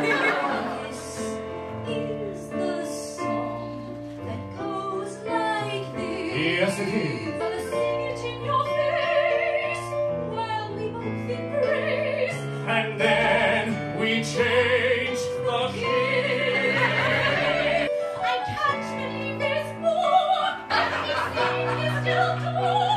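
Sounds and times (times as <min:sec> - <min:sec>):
piano accompaniment: 0:00.0 - 0:22.9
woman and man singing duet: 0:11.4 - 0:22.9.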